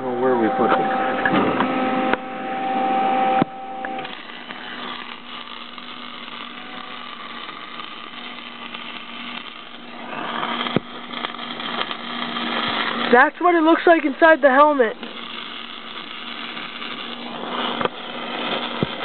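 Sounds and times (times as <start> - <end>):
steady hum: 0.0 - 19.0
welding arc crackling and hissing: 3.8 - 19.0.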